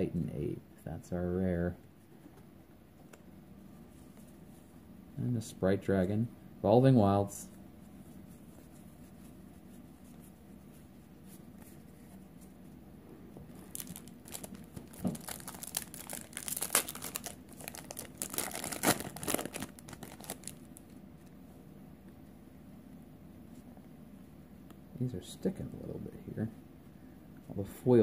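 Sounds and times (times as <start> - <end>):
foil wrapper tearing and crinkling: 13.6 - 20.6.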